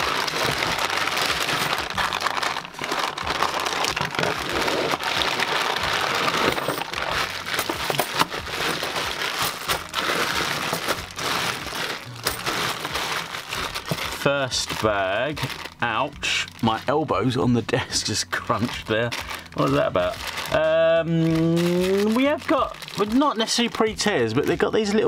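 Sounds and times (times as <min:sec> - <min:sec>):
scissors cutting plastic: 0:00.0 - 0:14.8
plastic bag crinkling: 0:00.0 - 0:17.2, 0:18.3 - 0:25.0
coins clicking: 0:06.2 - 0:06.9.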